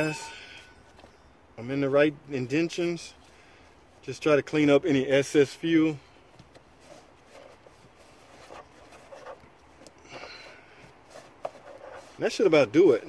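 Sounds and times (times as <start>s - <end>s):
cloth rag rubbing and rustling: 6.6s - 13.0s.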